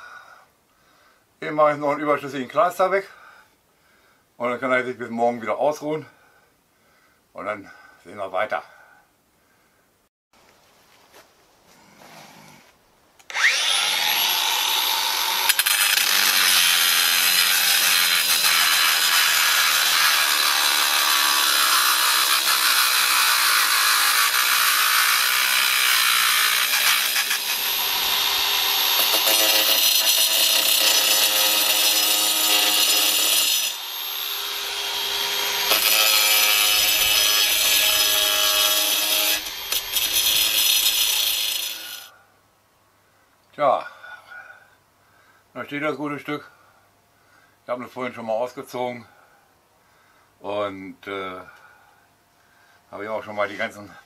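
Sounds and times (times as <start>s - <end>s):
power tool cutting wood: 13.3s - 42.1s.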